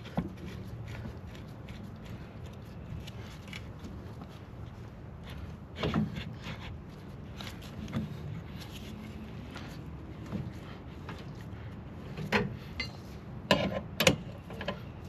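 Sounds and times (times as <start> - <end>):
metal knocking and scraping on wood: 5.7 - 6.7, 12.1 - 15.0.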